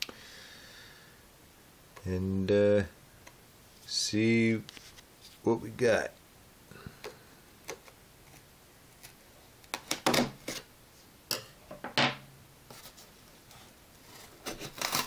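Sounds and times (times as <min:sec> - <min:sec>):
knife cutting taped cardboard: 0:14.1 - 0:15.0.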